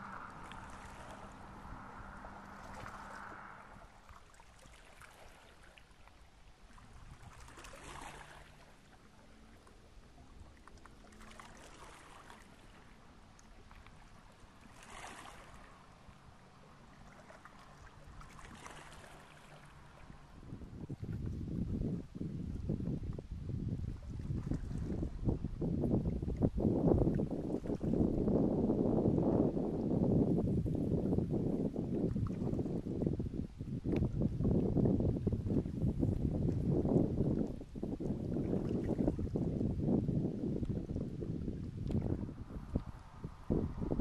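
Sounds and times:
low steady hum: 0.0 - 5.1
soft water swish: 0.0 - 44.0.

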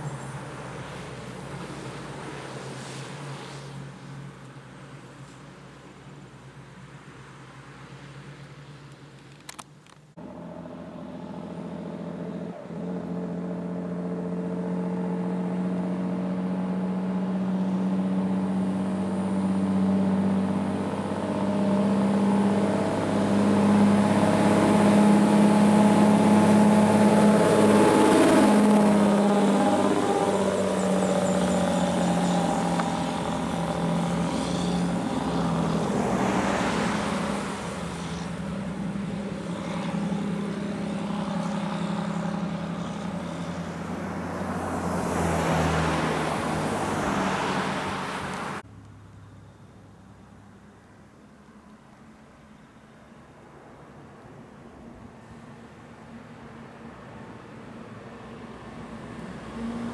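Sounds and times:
car passing by: 0.0 - 8.8, 10.2 - 48.7, 53.3 - 59.9
tyres on road: 0.0 - 59.9
truck diesel engine climbing: 9.5 - 49.6.

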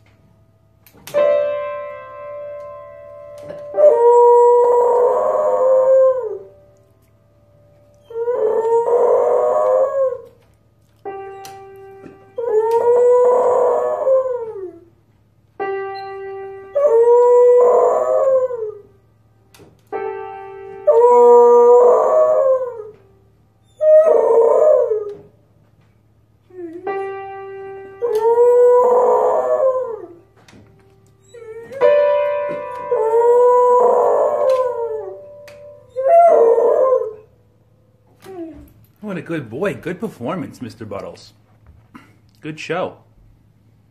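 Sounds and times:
piano notes plunked: 0.0 - 10.1, 26.5 - 37.1
dog howling: 3.7 - 6.6, 8.0 - 10.4, 11.3 - 14.9, 16.7 - 18.9, 20.8 - 23.0, 23.6 - 25.3, 27.8 - 30.2, 31.2 - 37.3, 38.2 - 38.8.

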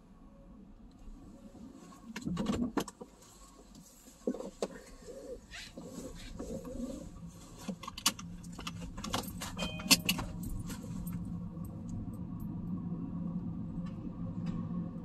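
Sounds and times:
car humming at low speed: 0.0 - 15.0.

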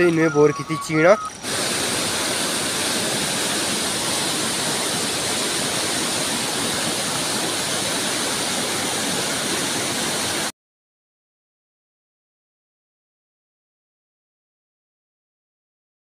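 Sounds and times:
river rushing over boulders: 1.3 - 10.5.

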